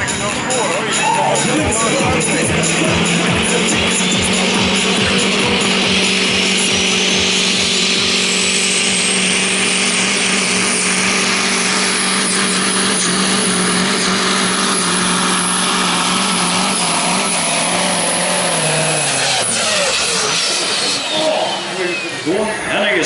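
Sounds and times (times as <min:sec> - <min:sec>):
diesel truck engine under load: 0:00.0 - 0:23.0
high whistle: 0:20.9 - 0:22.5.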